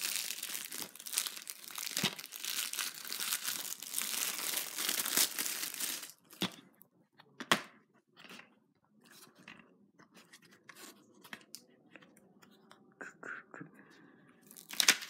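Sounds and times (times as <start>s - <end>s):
plastic shrink-wrap crinkling: 0.0s - 6.4s.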